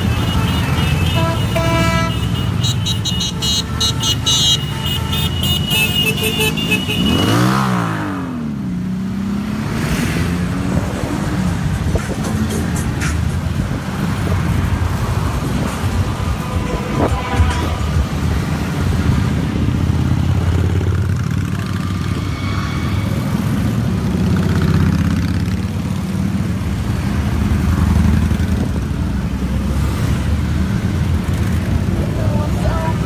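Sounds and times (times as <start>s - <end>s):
motorcycles rumbling past: 19.9s - 26.5s.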